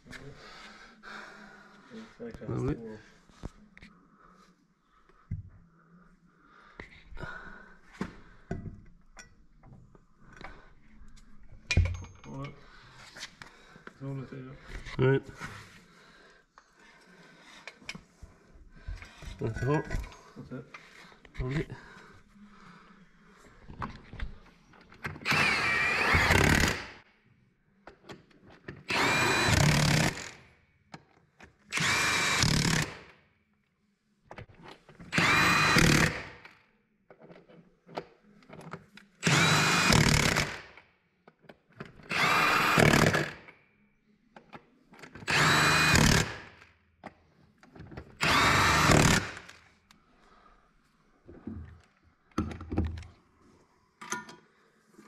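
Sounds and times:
impact wrench hammer-rattle: 0:29.0 - 0:30.4, 0:39.3 - 0:40.7, 0:42.1 - 0:43.5, 0:45.3 - 0:46.6, 0:48.2 - 0:49.6.

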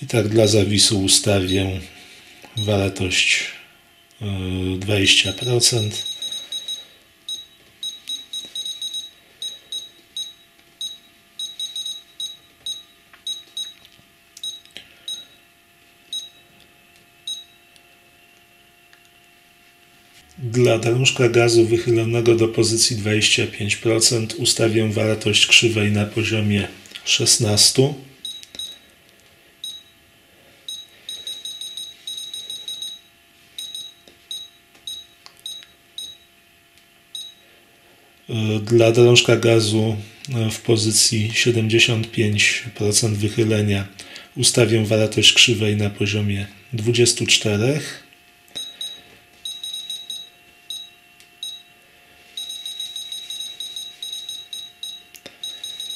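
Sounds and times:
radio transmitter beeping: 0:01.2 - 0:01.8, 0:05.0 - 0:13.8.

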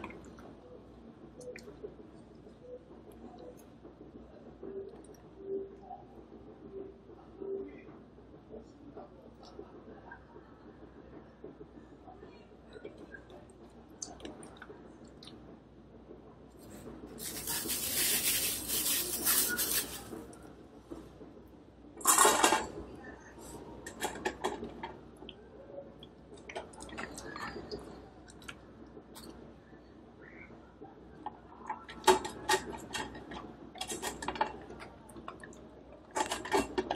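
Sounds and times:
kibble poured into metal bowl: 0:17.2 - 0:20.1
rustling: 0:17.2 - 0:20.1.

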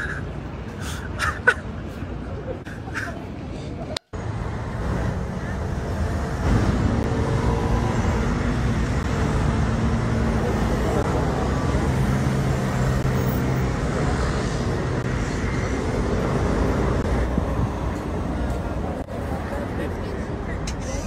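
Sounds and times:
passing vehicles rumbling: 0:00.0 - 0:21.0
people talking: 0:18.6 - 0:21.0.

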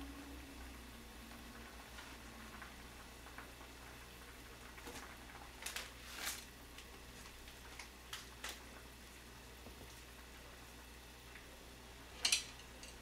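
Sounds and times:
plastic packet handled: 0:04.8 - 0:08.8.

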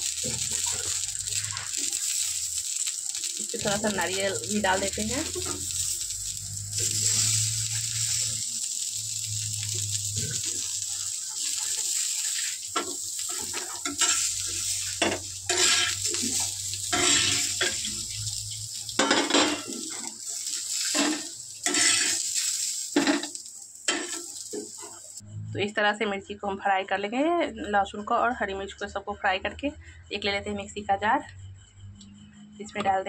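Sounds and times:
food sizzling in oil: 0:00.0 - 0:25.3
metal spatula scraping pan: 0:11.5 - 0:18.1, 0:20.8 - 0:22.3.

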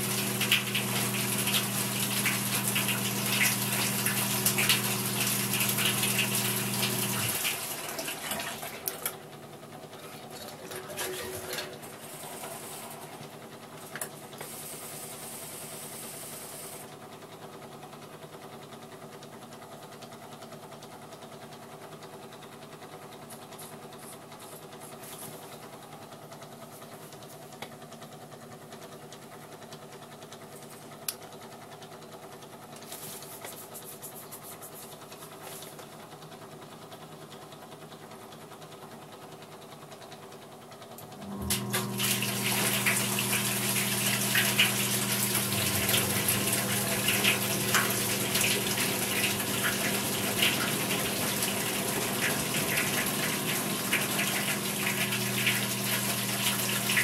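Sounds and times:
washing machine motor humming: 0:00.0 - 0:57.0
water splashing in drum: 0:42.0 - 0:57.0.

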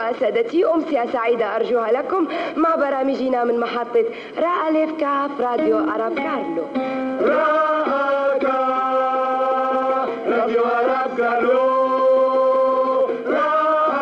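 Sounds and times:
choir singing in harmony: 0:07.1 - 0:14.0.

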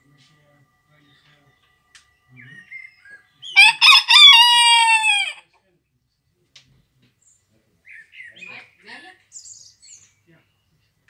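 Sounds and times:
rooster crowing: 0:03.6 - 0:05.4.

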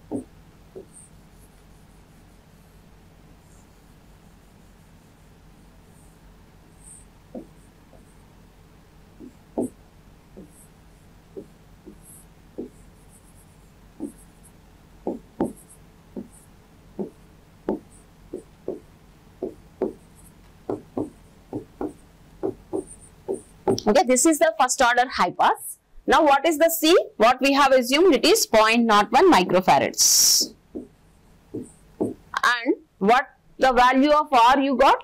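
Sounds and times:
pen writing on a board: 0:00.1 - 0:08.2, 0:09.2 - 0:09.8, 0:10.4 - 0:23.8, 0:30.7 - 0:32.3.

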